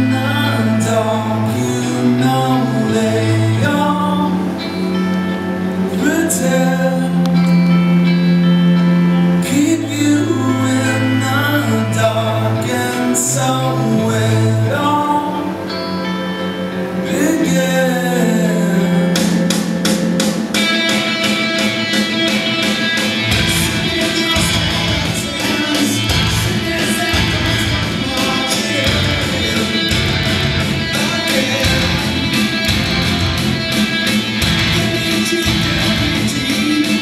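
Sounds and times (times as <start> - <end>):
person singing: 0.0 - 5.0, 5.8 - 8.1, 9.4 - 37.0
sustained guitar: 0.0 - 37.0
heavy bass: 17.6 - 37.0
drums: 19.1 - 37.0.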